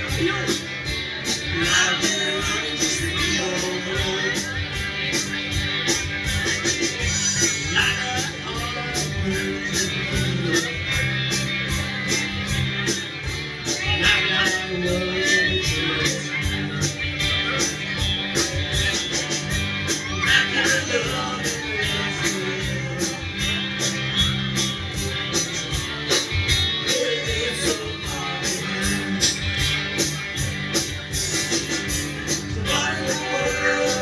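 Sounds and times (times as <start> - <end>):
drums with cymbal beat: 0.0 - 34.0
electric guitars: 0.0 - 34.0
person singing: 1.5 - 4.7, 7.0 - 11.1, 13.7 - 17.8, 19.9 - 23.8, 26.8 - 29.5, 32.3 - 34.0.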